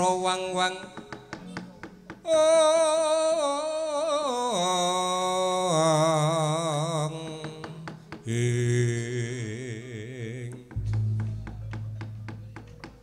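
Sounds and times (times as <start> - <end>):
person singing with vibrato: 2.3 - 11.5
held musical tone: 10.8 - 12.9.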